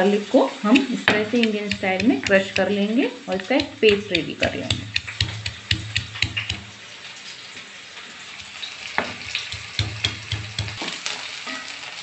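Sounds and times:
onions sizzling in oil: 0.0s - 12.0s
wooden spatula knocking and scraping: 0.7s - 6.8s, 8.4s - 11.0s.

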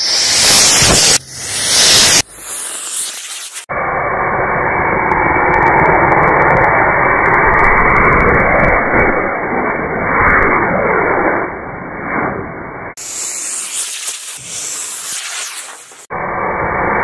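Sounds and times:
rocket motor hissing thrust: 0.0s - 3.7s, 13.0s - 16.1s.

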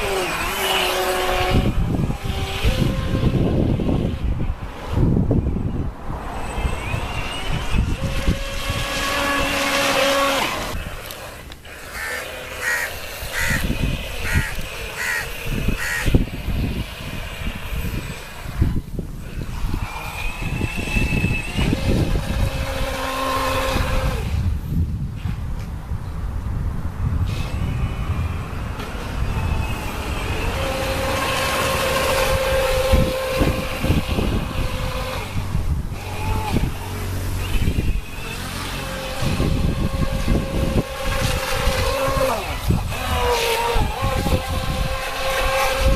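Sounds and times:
electric motor whining: 0.0s - 25.4s, 27.2s - 45.9s
wind rumbling on microphone: 0.0s - 45.9s
bird calling: 11.9s - 16.2s.

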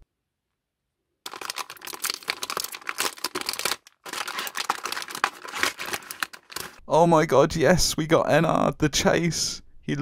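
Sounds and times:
foil packet crinkling and tearing: 1.3s - 6.8s.

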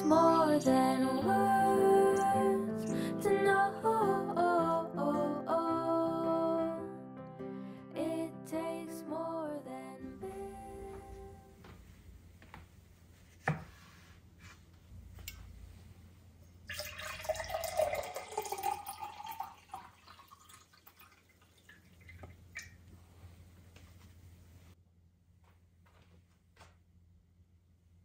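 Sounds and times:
glass clinking: 16.7s - 20.6s
water pouring into glass: 16.7s - 22.8s.

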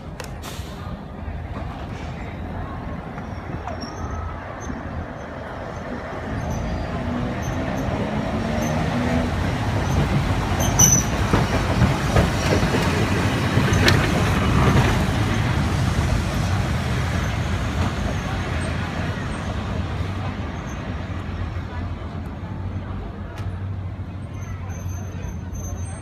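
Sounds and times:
tram wheels rumbling on rails: 0.0s - 26.0s.

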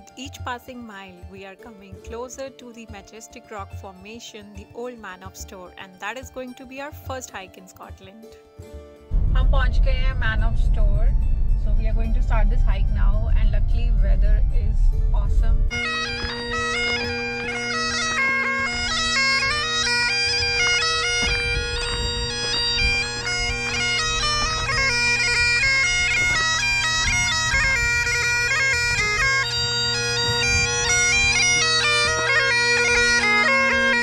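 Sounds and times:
bagpipe melody over drone: 11.3s - 34.0s.

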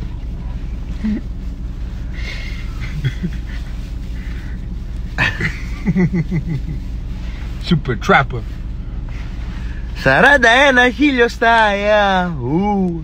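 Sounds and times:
steady low hum: 0.0s - 13.0s
man laughing: 2.3s - 3.8s, 5.1s - 6.9s
breathy chuckles: 2.7s - 3.7s.

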